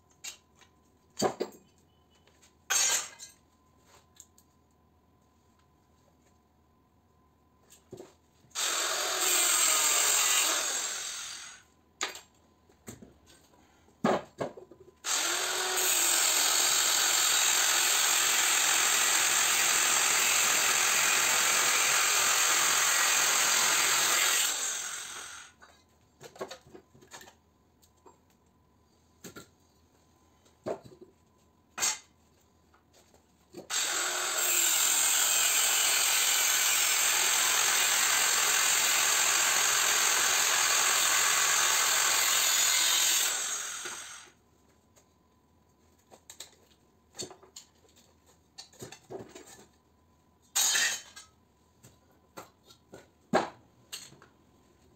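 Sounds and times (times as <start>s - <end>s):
angle grinder cutting metal: 8.6s - 11.6s, 15.1s - 25.5s, 33.7s - 44.3s.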